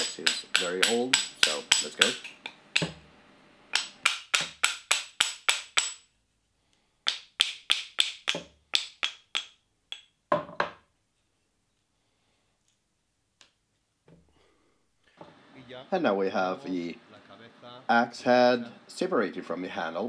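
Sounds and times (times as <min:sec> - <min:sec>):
hammer striking axe head: 0:00.0 - 0:03.0, 0:03.7 - 0:06.0, 0:07.0 - 0:10.8.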